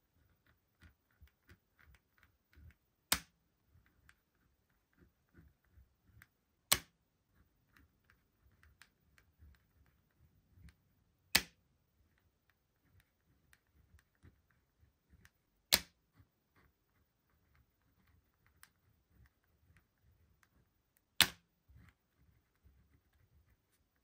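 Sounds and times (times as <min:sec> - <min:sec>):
pen writing on paper: 0:03.7 - 0:06.2.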